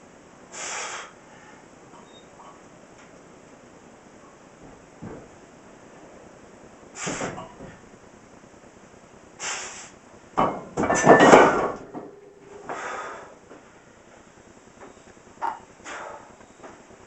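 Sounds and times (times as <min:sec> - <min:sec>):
man exhaling forcefully: 0:00.5 - 0:01.5, 0:07.0 - 0:07.4, 0:09.4 - 0:10.0, 0:12.7 - 0:13.4, 0:15.8 - 0:16.3
barbell plates knocking: 0:10.4 - 0:12.8.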